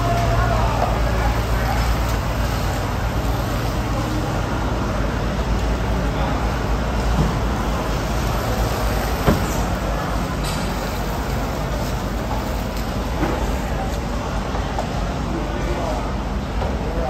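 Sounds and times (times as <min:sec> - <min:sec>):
hose water splashing on floor: 0:00.0 - 0:04.8, 0:06.4 - 0:15.0.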